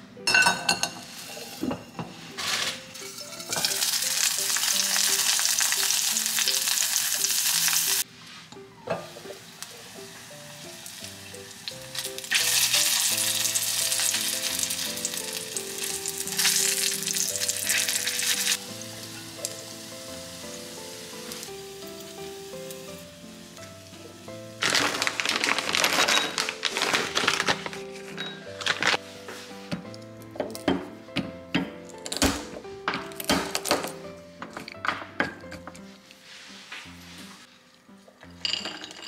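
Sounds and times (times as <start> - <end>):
soft background music: 0.0 - 39.0
food sizzling in hot oil: 2.3 - 8.1, 9.1 - 27.2.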